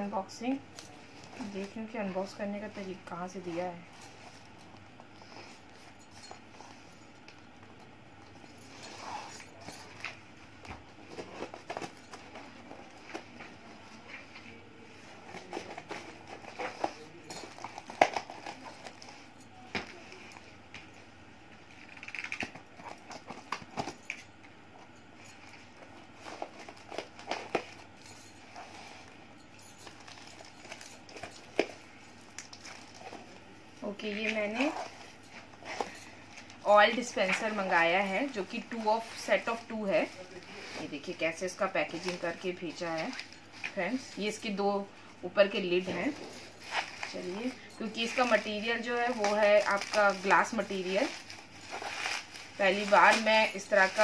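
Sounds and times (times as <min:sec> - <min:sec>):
packaging rustling and crinkling: 0:00.7 - 0:20.9, 0:21.6 - 0:54.0
small clicks and crackles: 0:21.6 - 0:24.6.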